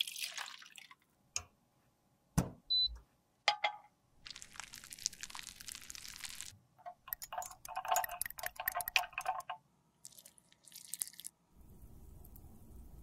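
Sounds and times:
metal rod clinking glass beaker: 7.0s - 9.5s.

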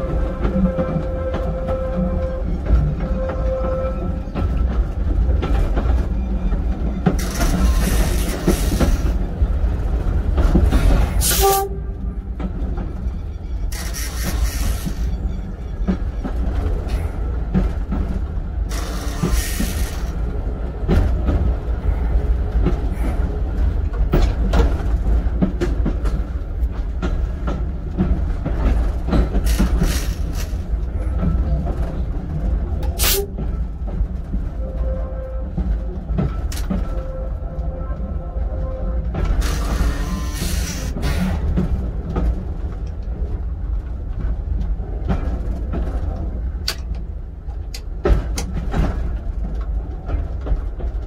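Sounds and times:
wheels clattering over rails: 0.0s - 21.8s, 22.5s - 37.2s
train rumble: 0.0s - 51.0s.

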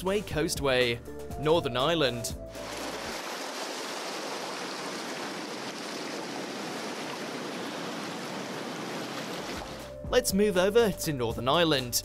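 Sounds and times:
surf breaking over rocks: 2.6s - 9.9s.

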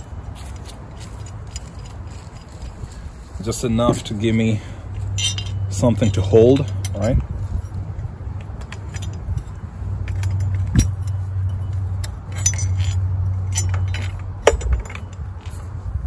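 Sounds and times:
steady low rumble: 0.0s - 16.0s
small metal clinks and taps: 5.0s - 15.7s.

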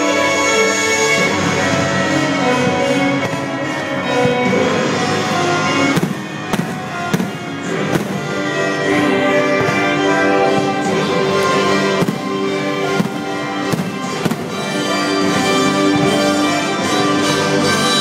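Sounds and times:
orchestral music with strings: 0.0s - 18.0s
fireworks cracking: 5.9s - 8.6s, 9.3s - 16.6s.

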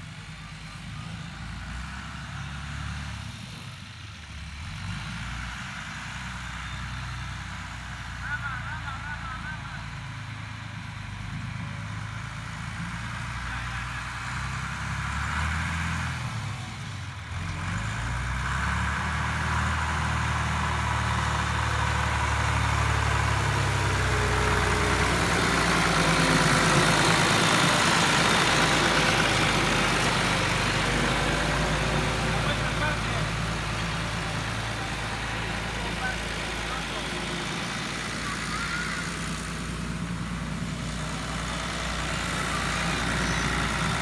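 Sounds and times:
tractor engine passing: 0.0s - 44.0s.

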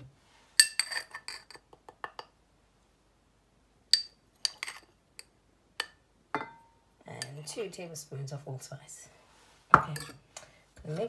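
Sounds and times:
metal spoon clinking on glass: 0.6s - 1.6s, 3.9s - 4.9s, 5.8s - 7.3s, 9.8s - 10.2s.

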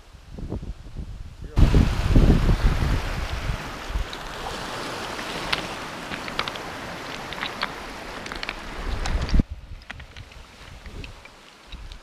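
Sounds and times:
lake waves washing onto shore: 1.4s - 12.0s
stones clicking: 4.0s - 12.0s.

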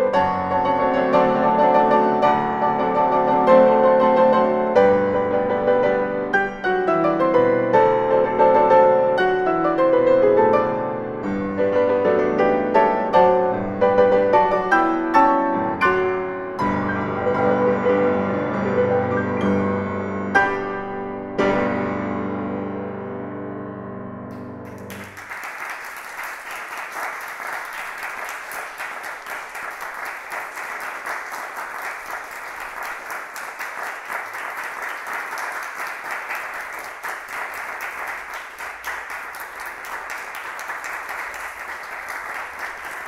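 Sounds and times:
audience applauding: 24.3s - 43.0s.

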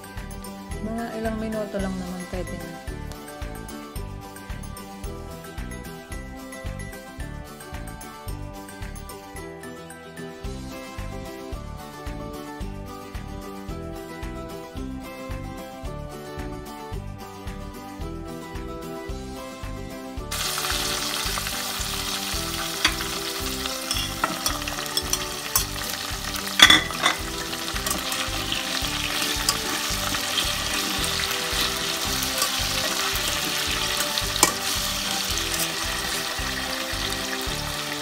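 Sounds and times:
vegetables sizzling in hot oil: 20.3s - 38.0s
vegetables clattering into pan: 20.4s - 36.2s
metal tongs scraping a pan: 22.6s - 36.4s.

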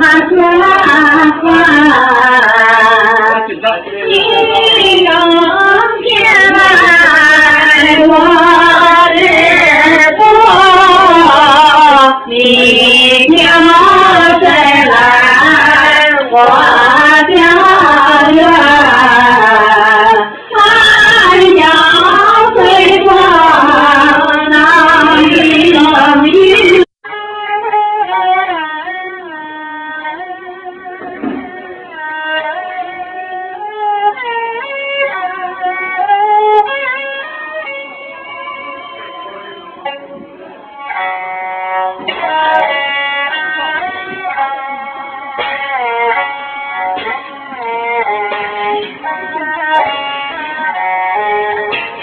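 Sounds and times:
quiet music with held notes: 27.1s - 52.0s.

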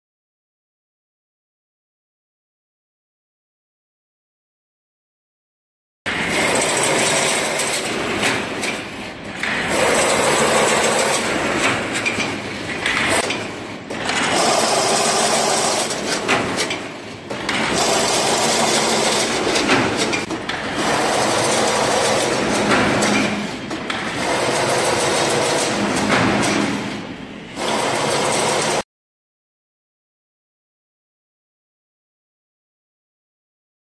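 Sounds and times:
chain link fence machine running: 6.1s - 26.9s, 27.6s - 28.8s.

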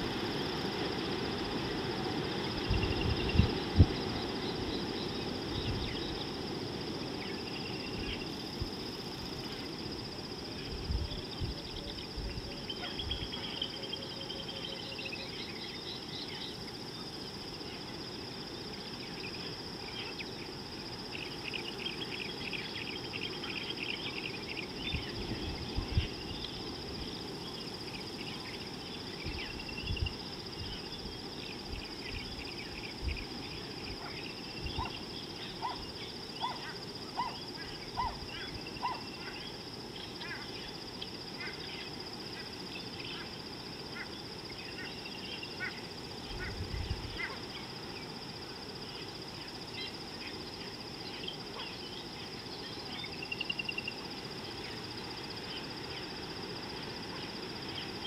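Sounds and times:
wind rumble on microphone: 0.0s - 9.0s, 10.5s - 13.4s, 24.8s - 27.4s, 29.1s - 35.0s, 46.2s - 47.4s.

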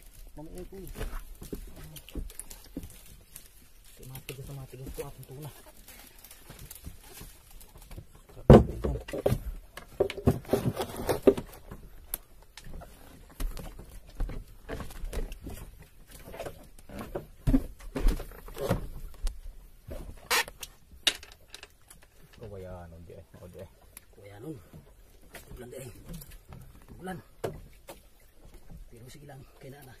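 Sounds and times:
knocks and thumps on boat deck: 8.3s - 11.8s.

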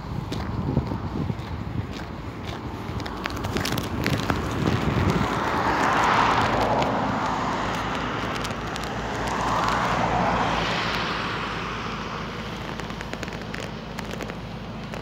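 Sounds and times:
cars passing: 0.0s - 15.0s.

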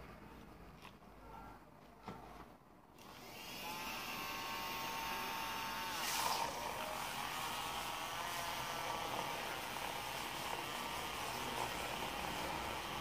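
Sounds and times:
milk frothers whirring: 3.0s - 13.0s.

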